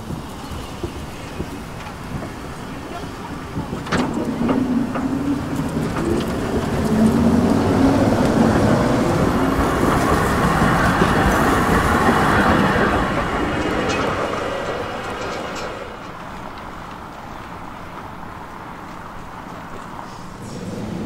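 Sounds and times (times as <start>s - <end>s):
tram wheels rumbling on rails: 0.0s - 21.0s
low motor hum: 20.4s - 21.0s.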